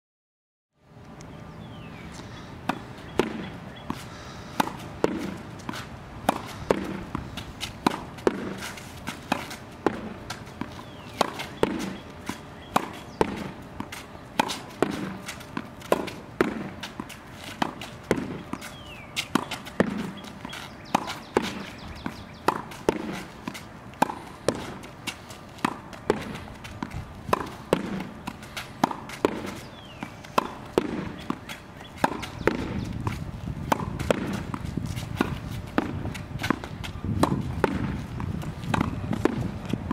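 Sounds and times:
racket striking tennis ball: 2.6 - 39.9
ball bouncing on concrete: 2.7 - 4.0, 4.6 - 39.9
ball rebounding off backboard: 30.4 - 31.3.

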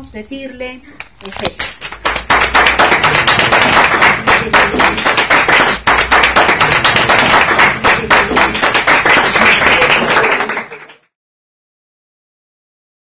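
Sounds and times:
audience applauding: 1.7 - 11.1.

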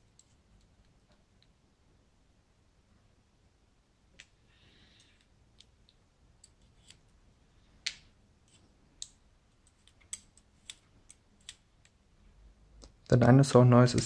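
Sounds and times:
lock pins and tweezers clicking: 8.5 - 12.0.

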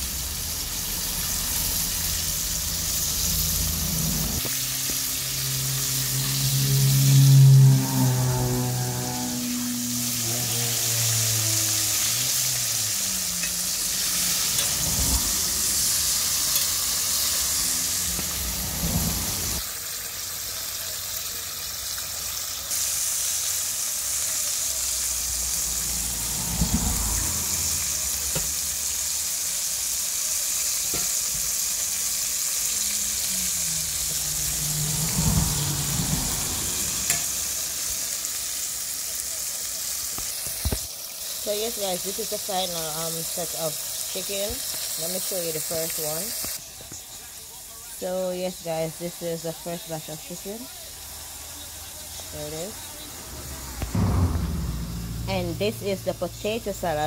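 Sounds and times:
chicken deep-frying in oil: 0.0 - 54.0
low thumps: 53.8 - 56.5.

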